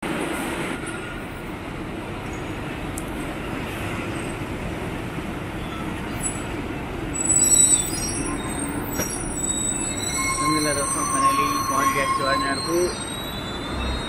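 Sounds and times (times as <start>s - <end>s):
bus engines running: 0.0s - 14.0s
high-pitched squeal: 7.1s - 14.0s.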